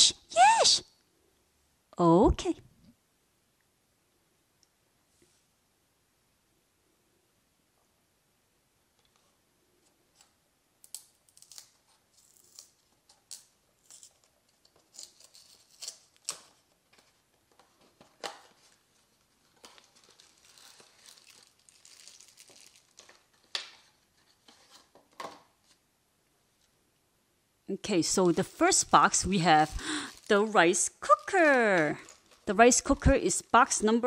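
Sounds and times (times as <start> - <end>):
paper and plastic rustling: 11.5 - 25.8, 28.0 - 33.8.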